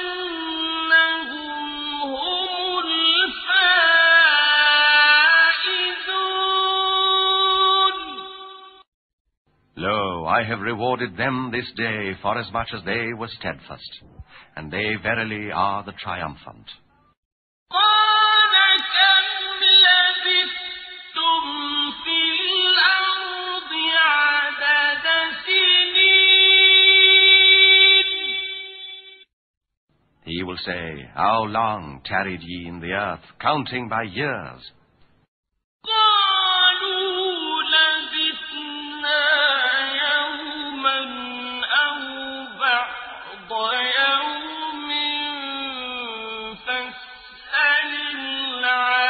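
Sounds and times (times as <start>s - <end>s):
person chanting recitation: 9.8s - 16.8s, 30.3s - 34.7s, 35.9s - 49.0s.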